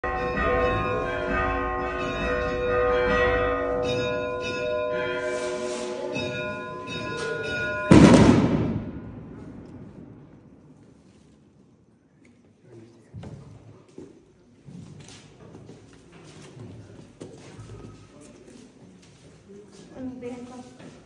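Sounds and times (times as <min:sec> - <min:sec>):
church bells ringing: 0:00.0 - 0:10.2
sudden loud bang: 0:07.9 - 0:10.3.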